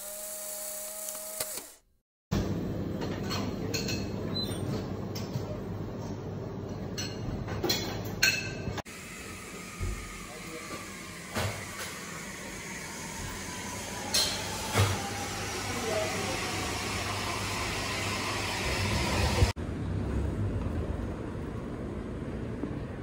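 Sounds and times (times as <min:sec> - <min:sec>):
cafe room hiss and hum: 0:02.4 - 0:23.0
dull street ambience: 0:19.2 - 0:23.0.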